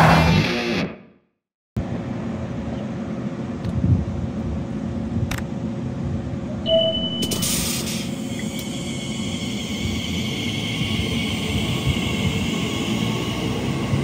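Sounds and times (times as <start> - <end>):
electric train rumble and hum: 1.8 - 14.0
train hiss and whine: 5.6 - 14.0
short high beep: 6.7 - 7.9.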